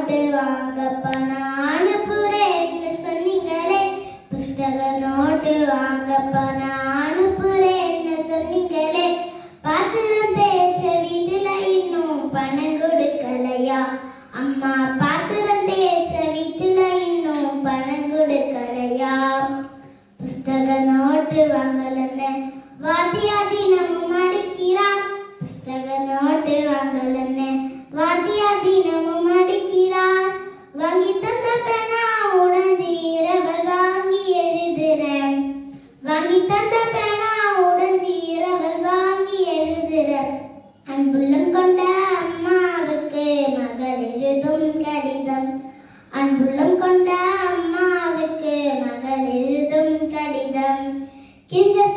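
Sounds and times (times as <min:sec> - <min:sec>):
girl singing unaccompanied: 0:18.9 - 0:51.9.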